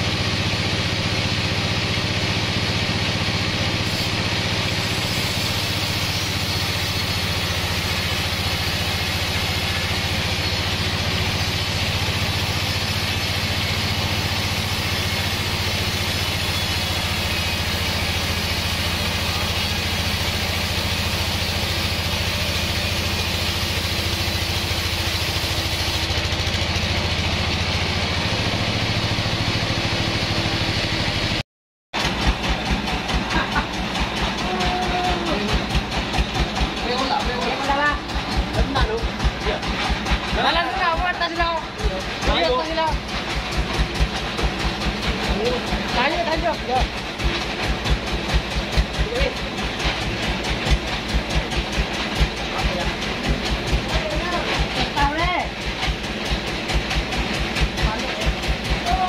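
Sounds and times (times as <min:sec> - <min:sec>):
band saw cutting a log: 0:00.0 - 0:31.4, 0:32.0 - 0:59.0.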